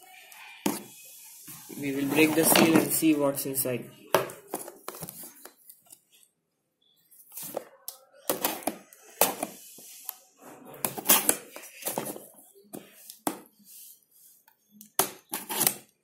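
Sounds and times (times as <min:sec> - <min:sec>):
cardboard box scraping and rustling: 0:01.9 - 0:03.0.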